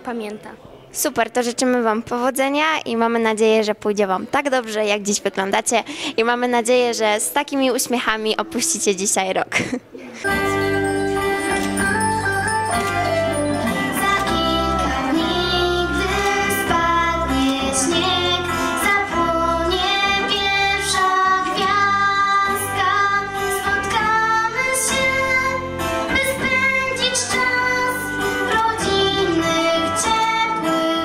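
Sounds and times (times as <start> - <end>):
instrumental accompaniment: 10.2 - 31.0
girl singing a carol: 13.8 - 31.0.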